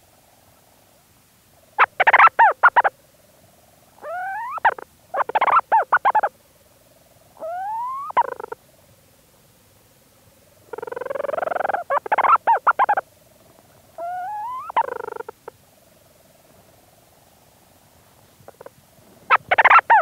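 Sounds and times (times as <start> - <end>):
faint steady hum: 0.0 - 20.0
petrel calling and chattering: 1.8 - 2.9, 4.0 - 6.3, 7.4 - 8.6, 10.7 - 13.0, 14.0 - 15.4, 19.3 - 20.0.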